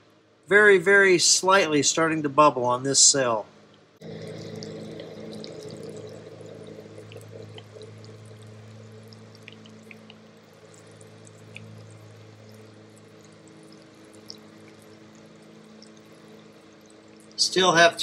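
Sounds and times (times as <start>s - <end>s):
low machine hum: 0.0s - 18.0s
battery electrolyte fizzing: 4.0s - 18.0s.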